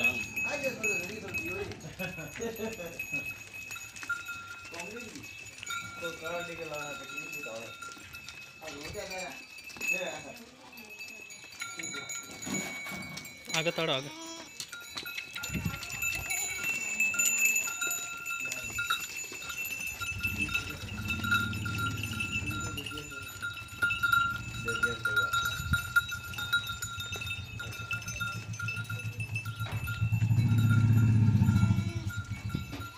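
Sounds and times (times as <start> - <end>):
goats bleating: 14.0 - 14.6
steady high ringing tone: 14.6 - 32.9.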